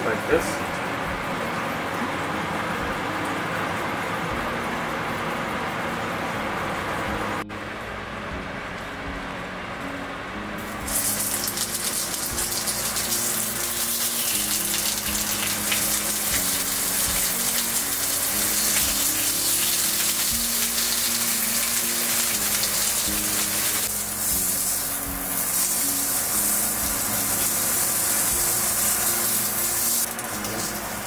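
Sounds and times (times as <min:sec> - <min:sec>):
background music: 0:00.0 - 0:31.0
meat sizzling in a skillet: 0:10.8 - 0:31.0.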